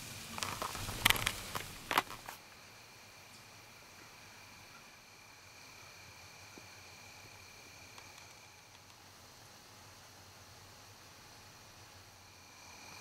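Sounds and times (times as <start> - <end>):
high-pitched insect drone: 12.2 - 13.0.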